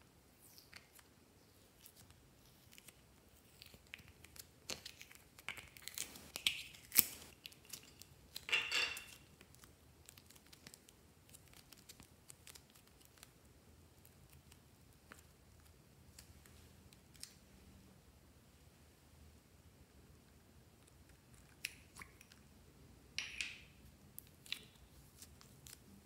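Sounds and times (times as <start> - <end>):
crinkling rustle: 1.8 - 8.5
sticky clay crackles and clicks: 1.8 - 8.5, 9.2 - 17.4.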